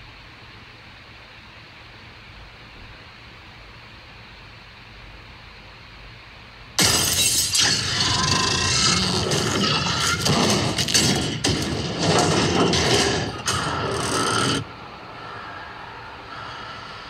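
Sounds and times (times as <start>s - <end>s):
metal banging and crashing: 6.8s - 14.7s
low hum: 6.8s - 17.0s.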